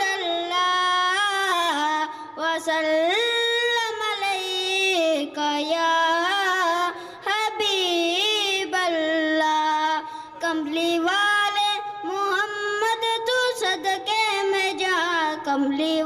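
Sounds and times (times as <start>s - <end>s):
boy singing into a microphone: 0.0s - 16.0s
singer breathing: 2.1s - 2.4s, 6.9s - 7.3s, 10.0s - 10.4s.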